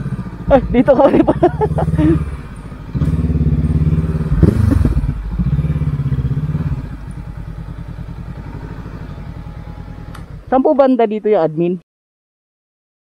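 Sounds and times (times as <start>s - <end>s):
motorcycle engine running: 0.0s - 11.4s.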